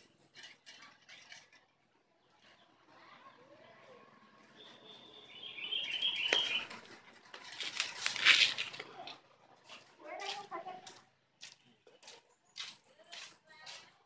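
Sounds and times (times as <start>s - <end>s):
rustling and scraping: 0.2s - 1.8s, 6.3s - 11.0s
bird chirping: 4.6s - 6.8s.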